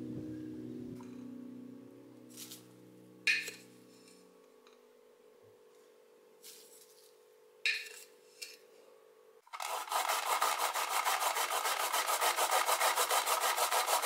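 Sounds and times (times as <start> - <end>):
spoon scooping granules: 9.5 - 12.0
carrot being grated: 9.5 - 14.0.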